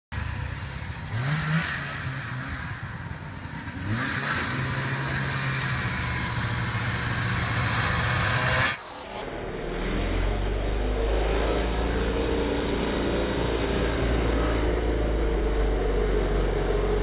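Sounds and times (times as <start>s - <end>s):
snowmobile engine revving: 0.2s - 17.0s.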